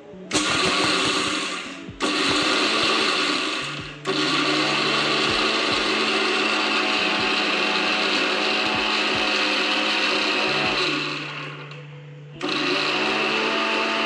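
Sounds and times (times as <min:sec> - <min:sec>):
mixer grinder running: 0:00.0 - 0:11.8, 0:12.4 - 0:14.0.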